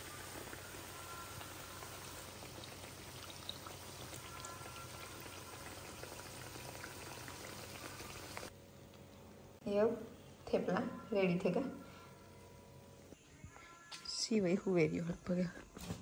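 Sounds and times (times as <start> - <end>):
food deep-frying in oil: 0.0 - 8.5.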